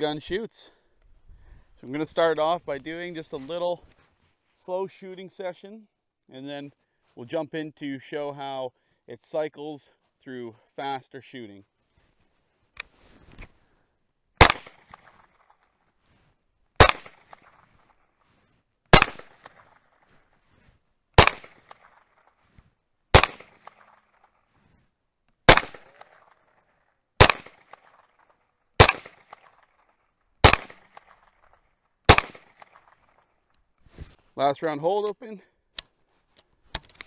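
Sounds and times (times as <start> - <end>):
rifle shots with echo: 14.4 - 15.5, 16.8 - 17.6, 18.9 - 19.8, 21.2 - 22.2, 23.1 - 24.2, 25.5 - 26.6, 27.2 - 31.3, 32.1 - 33.2.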